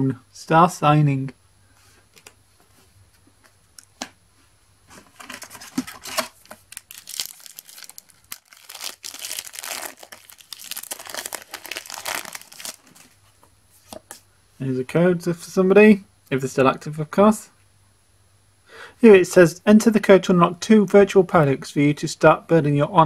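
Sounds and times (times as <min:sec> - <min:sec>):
wrapper crinkling: 0:05.0 - 0:13.2
foil packet tearing: 0:05.2 - 0:13.1.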